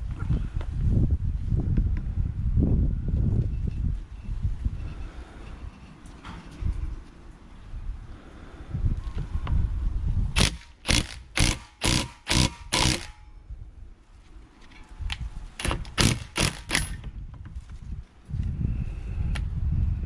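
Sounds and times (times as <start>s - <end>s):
impact wrench hammering: 10.4s - 13.3s, 15.6s - 17.1s.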